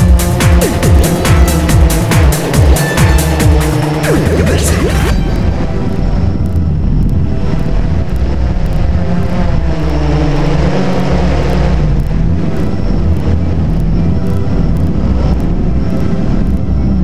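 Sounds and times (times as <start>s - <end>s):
drone motors buzzing: 0.0s - 17.0s
wind rumble on microphone: 5.2s - 17.0s.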